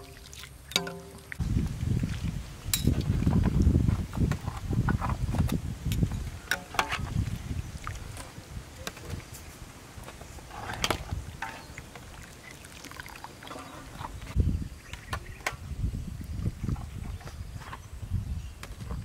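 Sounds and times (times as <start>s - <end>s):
broth sloshing and dripping: 0.0s - 3.7s, 6.8s - 8.4s, 10.5s - 14.4s
utensils knocking against pot: 0.7s - 1.2s.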